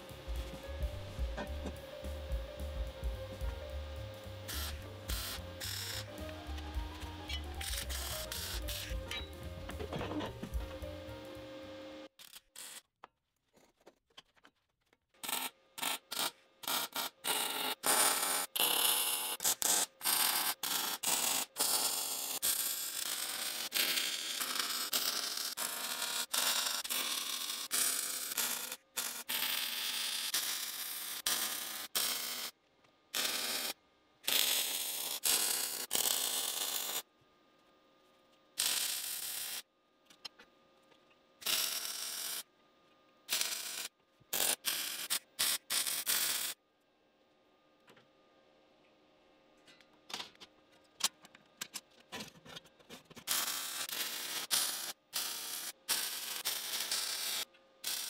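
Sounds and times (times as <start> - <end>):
welding arc: 4.1 - 9.0, 15.2 - 37.0, 38.6 - 39.7, 41.4 - 42.5, 43.3 - 46.6, 53.3 - 58.0.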